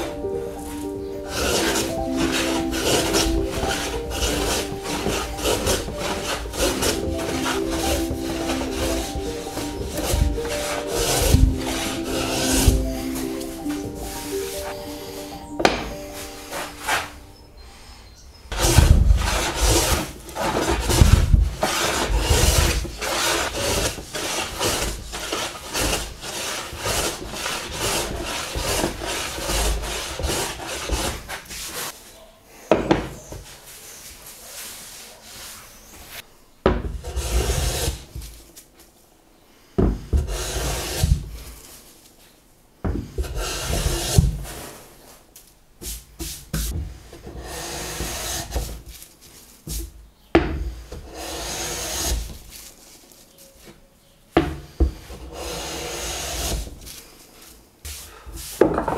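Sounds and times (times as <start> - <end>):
hand plane scraping wood: 0.0 - 17.2, 18.5 - 32.0, 37.0 - 38.2, 40.0 - 41.5, 42.9 - 44.8, 46.2 - 48.8, 50.5 - 52.7, 54.5 - 57.1.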